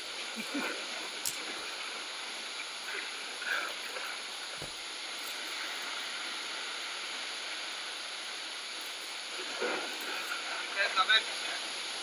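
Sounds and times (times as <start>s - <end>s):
surf breaking against rocks: 8.8s - 11.7s.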